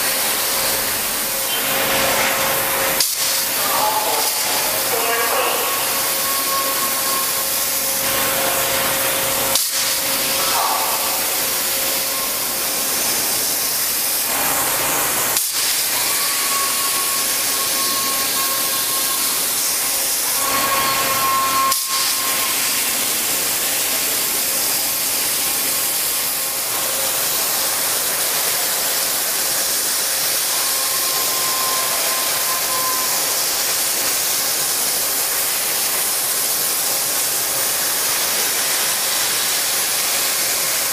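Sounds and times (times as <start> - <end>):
waterjet cutter hissing: 0.0 - 40.9
faint steady tones: 3.5 - 14.2, 15.9 - 24.1.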